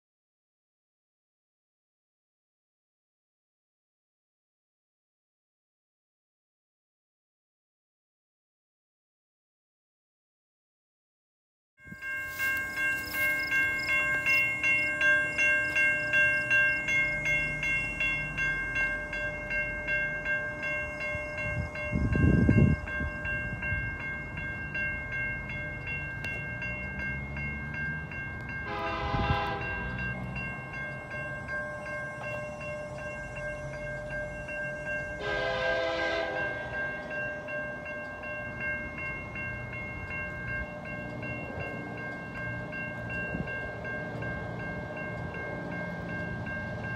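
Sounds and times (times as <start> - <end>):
level-crossing bells ringing: 11.8 - 46.9
locomotive horn blasts: 28.6 - 30.1, 35.0 - 37.1.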